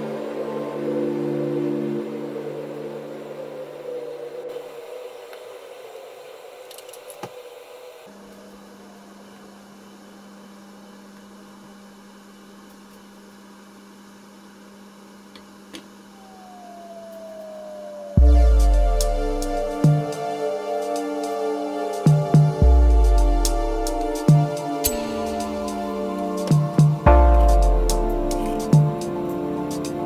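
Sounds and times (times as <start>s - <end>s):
low hum: 16.1s - 30.0s
loud background music: 18.2s - 30.0s.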